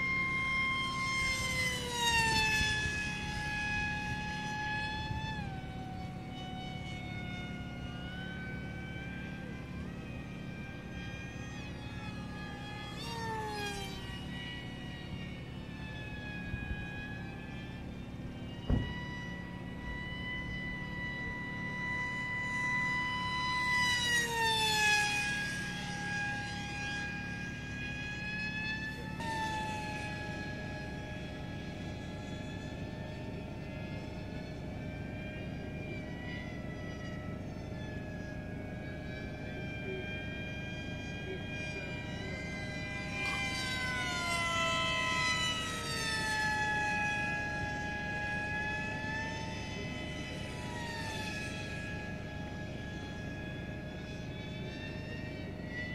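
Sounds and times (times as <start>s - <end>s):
model aircraft motor whining: 0.0s - 55.9s.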